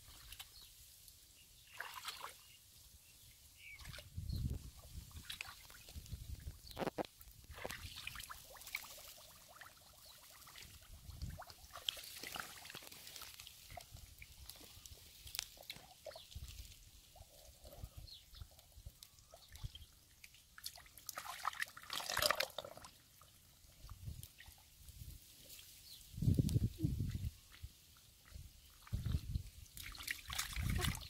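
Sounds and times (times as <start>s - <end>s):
hands squelching in wet mud: 3.8s - 16.9s, 19.0s - 22.9s, 28.2s - 31.0s
water splashing: 7.5s - 16.6s, 19.4s - 23.3s, 28.8s - 31.0s.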